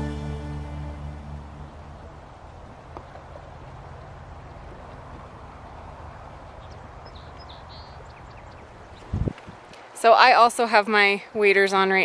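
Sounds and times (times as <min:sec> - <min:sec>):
music of sustained tones: 0:00.0 - 0:02.4.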